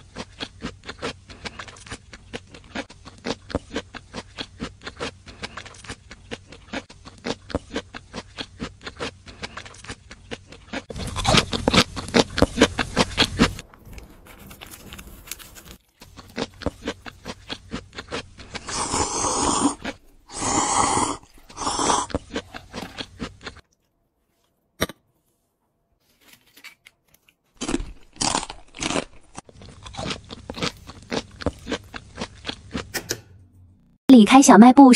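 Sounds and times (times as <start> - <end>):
chewing and crunching: 0.0 - 23.9, 26.2 - 32.9.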